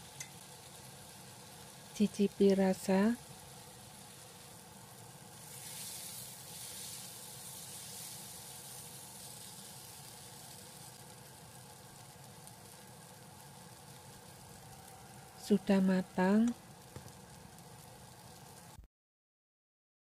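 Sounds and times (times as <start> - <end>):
spatula turning food: 0.0 - 1.9, 2.9 - 15.1
stir-fry sizzling in a wok: 0.0 - 18.8.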